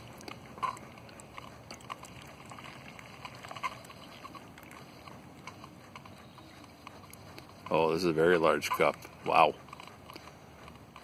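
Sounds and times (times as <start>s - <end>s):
coffee trickling into mug: 0.0s - 7.7s
small air pump running: 0.0s - 11.0s.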